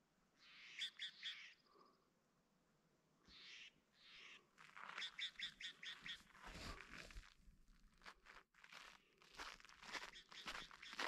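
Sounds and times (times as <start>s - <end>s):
faint bird chirps: 0.4s - 2.2s, 3.2s - 6.3s, 10.0s - 11.0s
footsteps crunching on snow: 4.6s - 11.0s.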